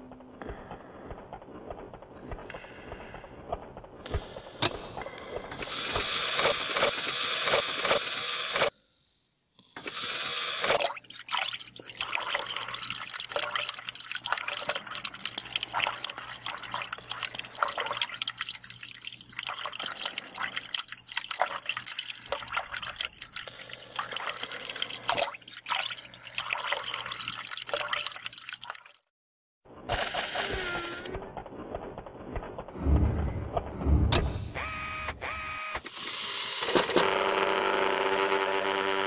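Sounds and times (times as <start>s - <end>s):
liquid trickling and dripping: 10.8s - 29.1s.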